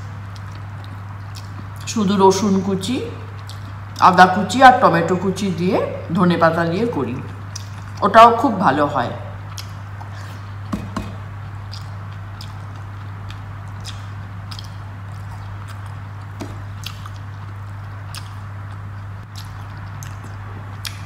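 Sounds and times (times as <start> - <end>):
steady low hum: 0.0 - 21.0
fingers squishing wet food: 9.5 - 21.0.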